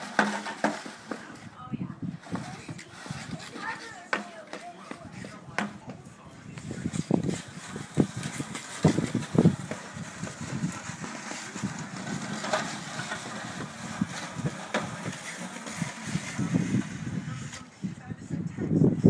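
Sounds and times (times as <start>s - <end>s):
plastic crate scraping across ice: 0.0s - 5.8s, 6.6s - 18.0s
skate blades scraping: 0.0s - 18.4s.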